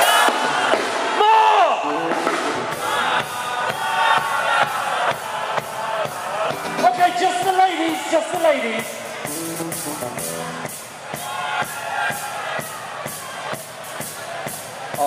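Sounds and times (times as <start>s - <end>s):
drums keeping a beat: 0.0s - 15.0s
electric guitars playing chords: 1.8s - 4.2s, 6.5s - 7.0s, 9.1s - 10.9s.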